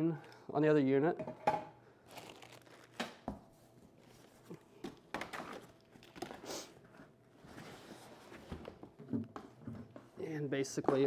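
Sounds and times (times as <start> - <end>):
packaging rustling and crinkling: 2.0 - 3.3, 3.9 - 6.4.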